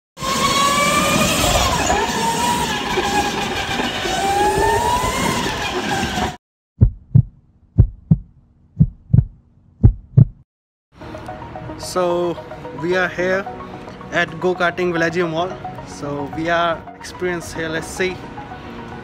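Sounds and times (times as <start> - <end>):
go-kart motors running: 0.2 - 6.4
heartbeat thumps: 6.8 - 10.4.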